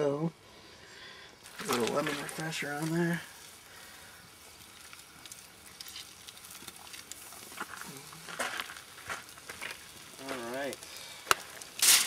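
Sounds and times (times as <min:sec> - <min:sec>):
fire crackles: 0:00.0 - 0:12.0
meat sizzling over fire: 0:00.0 - 0:12.0
sharp pops: 0:04.6 - 0:12.0.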